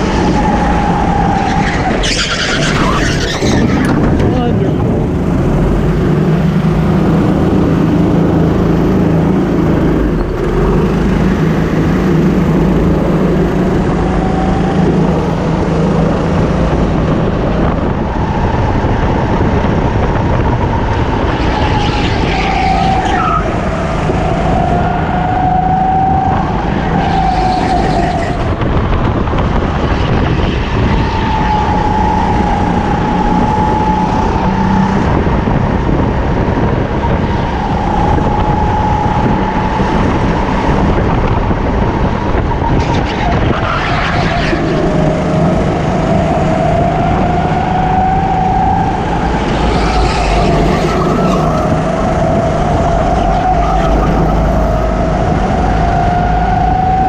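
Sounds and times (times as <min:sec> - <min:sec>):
kart engine at speed: 0:00.0 - 0:57.0
other karts passing nearby: 0:38.0 - 0:57.0.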